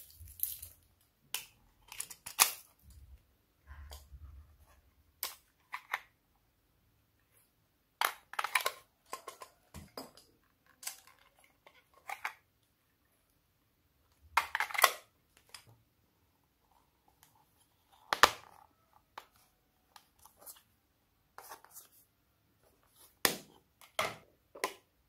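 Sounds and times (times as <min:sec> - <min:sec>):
plastic objects clicking and clattering: 0:00.0 - 0:03.0, 0:08.0 - 0:12.4.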